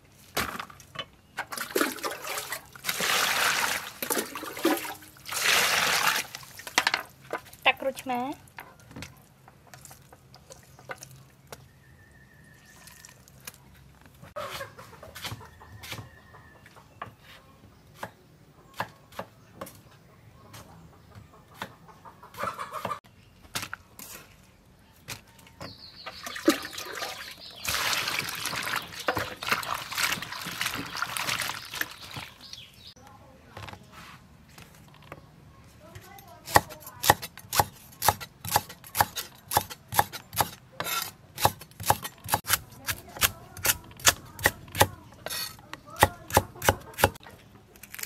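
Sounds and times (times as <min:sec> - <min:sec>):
chickens clucking: 0:14.2 - 0:23.1, 0:44.8 - 0:47.8.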